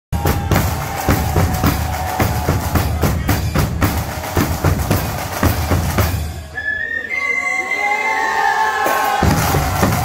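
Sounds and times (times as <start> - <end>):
drum corps playing march: 0.1 - 6.6, 8.8 - 10.0.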